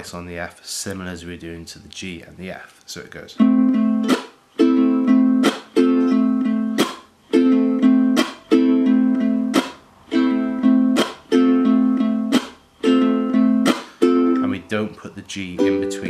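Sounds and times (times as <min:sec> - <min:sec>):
ukulele strumming: 0:03.4 - 0:16.0
muted percussive chunk: 0:06.8 - 0:07.1, 0:09.6 - 0:09.8, 0:11.0 - 0:11.3.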